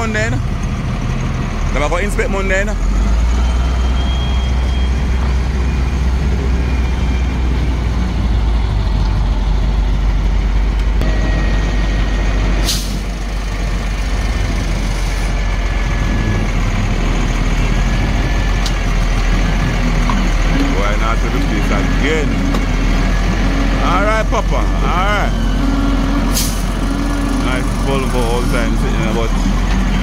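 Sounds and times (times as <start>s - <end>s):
diesel engine rumbling: 0.0s - 30.0s
air brake hiss: 12.6s - 13.0s, 26.3s - 26.7s.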